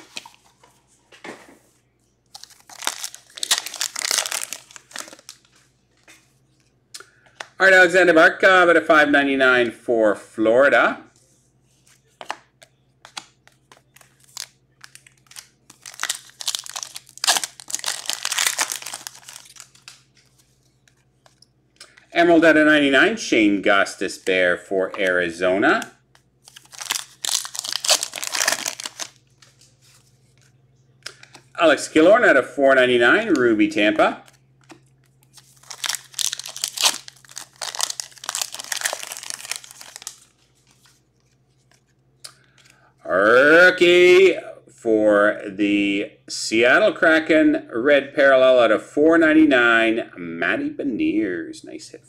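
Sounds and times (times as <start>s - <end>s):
foil wrapper crinkling: 2.3s - 5.6s, 13.1s - 22.0s, 26.5s - 29.6s, 34.2s - 41.3s.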